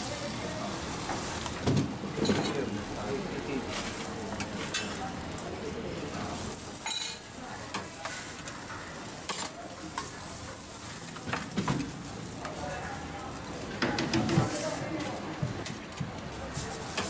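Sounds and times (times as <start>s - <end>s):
buns sizzling on a griddle: 0.0s - 17.0s
metal spoons clicking on bowls: 6.8s - 10.3s.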